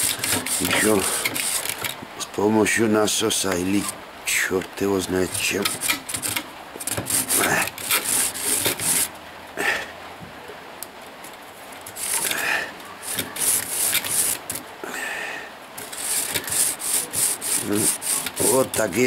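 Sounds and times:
wire rasping inside metal tubes: 0:00.0 - 0:01.9, 0:05.2 - 0:09.1, 0:11.9 - 0:12.4, 0:13.0 - 0:14.6, 0:15.8 - 0:19.0.

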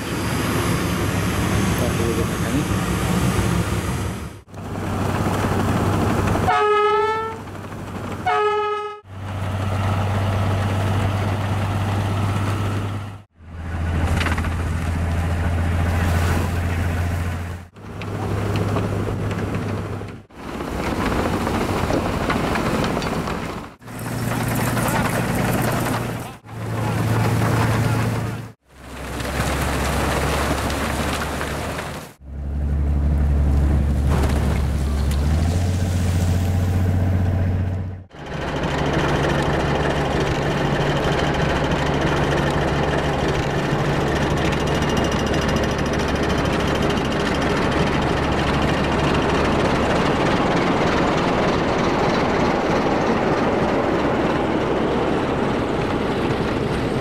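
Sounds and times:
diesel engine drone: 0:00.0 - 0:57.0
train horn blasts: 0:06.5 - 0:07.4, 0:08.2 - 0:09.1.

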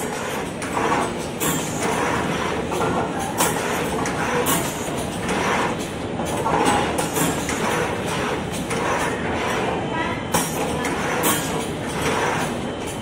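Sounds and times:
machine mechanical clatter: 0:00.0 - 0:13.0.

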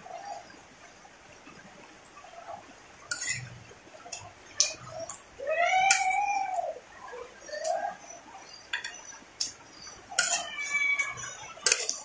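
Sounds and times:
metal spoon clicking on plate: 0:10.2 - 0:12.0.

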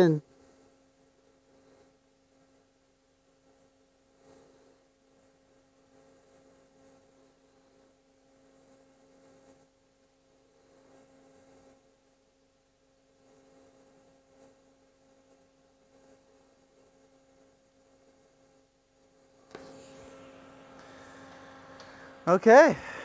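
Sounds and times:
welding arc humming: 0:19.2 - 0:23.0.

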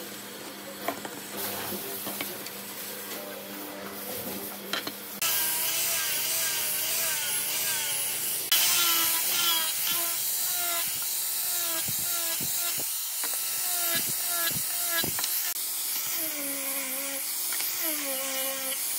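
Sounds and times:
angle grinder sanding wood: 0:05.2 - 0:18.9.

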